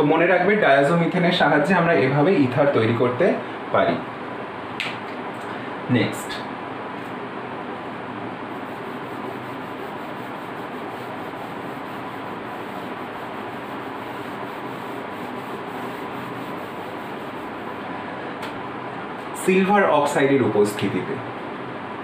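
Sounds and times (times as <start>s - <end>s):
eraser rubbing on whiteboard: 8.5s - 17.7s.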